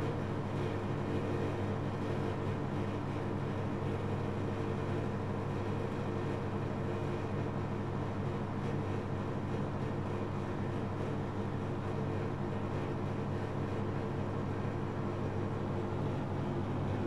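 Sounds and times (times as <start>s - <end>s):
washing machine spinning: 2.6s - 17.0s.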